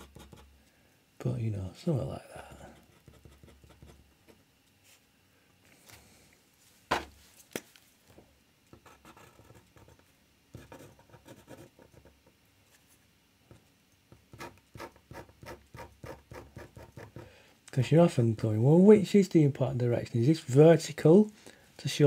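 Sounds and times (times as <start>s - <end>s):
pen scratching on paper: 0.0s - 0.5s, 2.8s - 4.0s, 8.8s - 12.1s, 14.3s - 17.2s.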